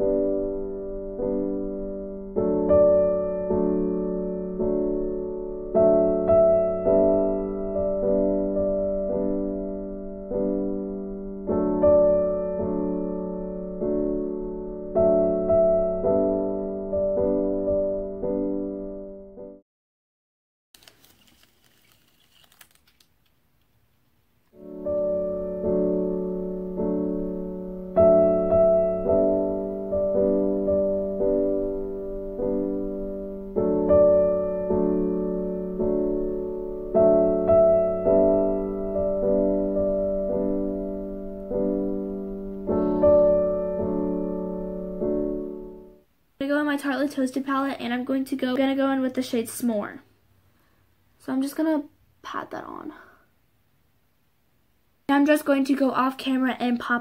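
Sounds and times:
soft piano chords: 0:00.0 - 0:19.6, 0:24.6 - 0:46.0.

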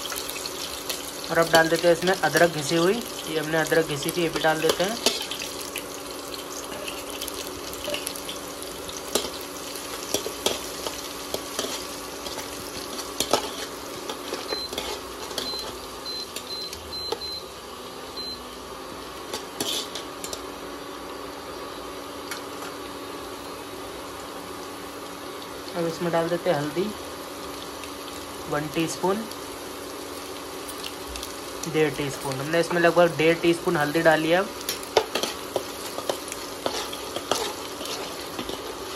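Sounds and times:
spices sizzling in hot oil: 0:00.0 - 0:38.9
metal spoon scraping pan: 0:10.1 - 0:15.8, 0:19.3 - 0:20.4, 0:34.7 - 0:38.9.

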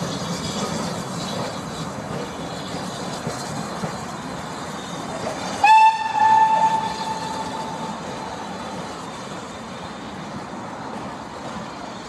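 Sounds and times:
train coaches rolling: 0:00.0 - 0:12.0
steam locomotive whistle: 0:05.5 - 0:08.0.

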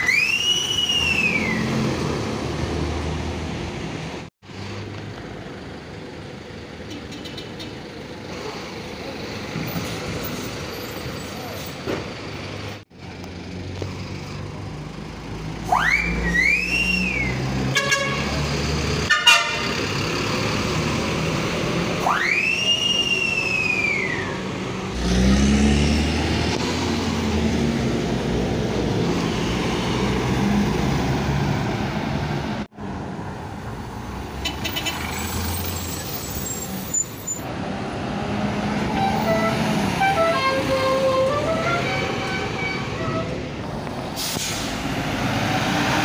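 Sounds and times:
high rising and falling whistles: 0:00.0 - 0:01.7, 0:15.8 - 0:17.4, 0:22.1 - 0:24.3
bus diesel engines running: 0:00.0 - 0:46.0.

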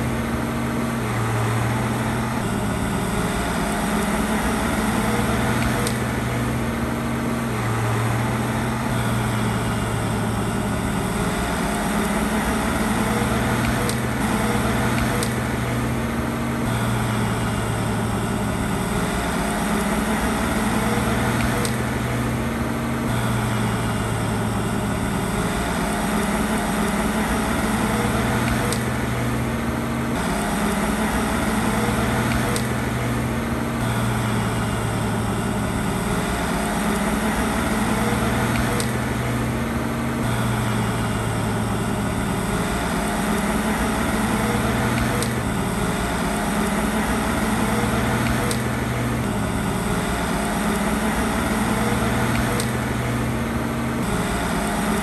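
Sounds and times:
heavy diesel machinery running: 0:00.0 - 0:55.0.

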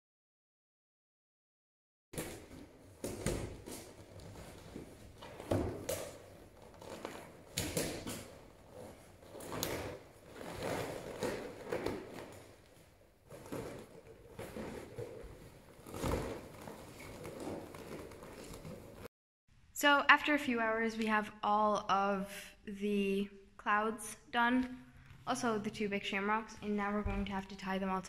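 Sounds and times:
balloons rubbing and squeaking: 0:02.2 - 0:19.1.

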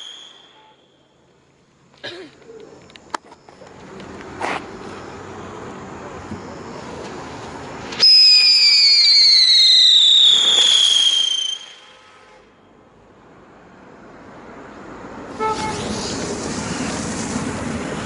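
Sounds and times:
steady firework hiss: 0:00.0 - 0:00.8, 0:05.8 - 0:12.5, 0:15.2 - 0:18.0
firework whistle falling in pitch: 0:00.0 - 0:00.9, 0:08.0 - 0:12.2.

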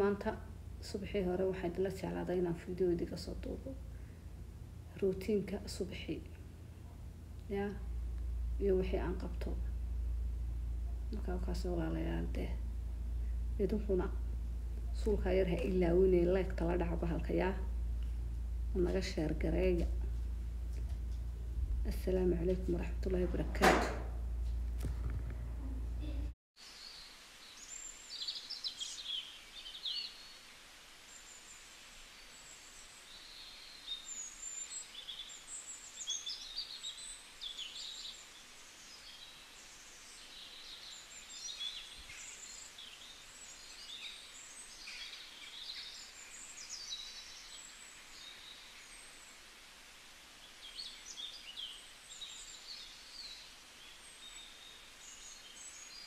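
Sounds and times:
steady low hiss: 0:00.0 - 0:56.0
small birds chirping: 0:25.6 - 0:56.0.

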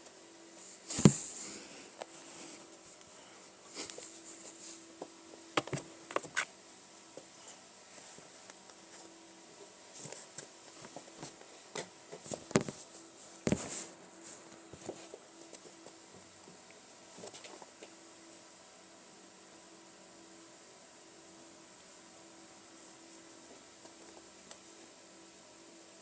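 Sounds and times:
soft rustling: 0:00.5 - 0:06.5, 0:09.9 - 0:16.0
kittens bumping camera: 0:05.6 - 0:06.4.

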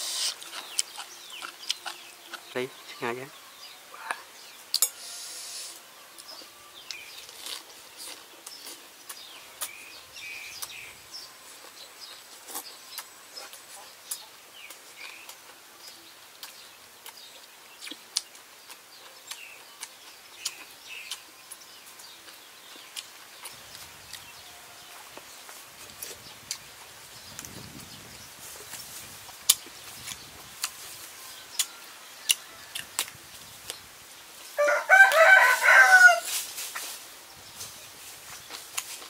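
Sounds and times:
small birds chirping: 0:00.0 - 0:35.8
outdoor background hiss: 0:00.0 - 0:39.0
person chewing with wet mouth clicks: 0:00.2 - 0:02.5.

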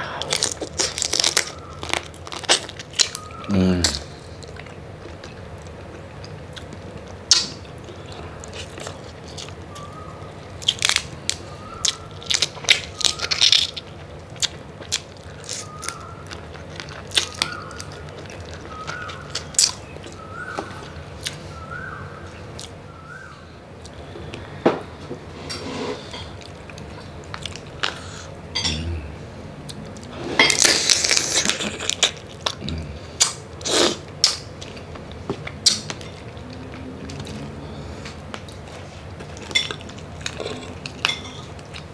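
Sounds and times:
shells cracking and crunching: 0:00.2 - 0:05.4, 0:08.5 - 0:20.5
chewing: 0:00.2 - 0:21.6, 0:26.1 - 0:28.8, 0:29.7 - 0:41.9.

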